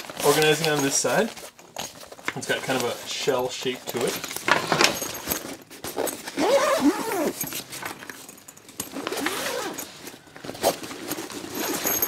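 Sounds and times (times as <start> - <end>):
fabric rustling: 4.0 - 12.0
zipper being unzipped: 5.9 - 7.7, 8.9 - 9.9.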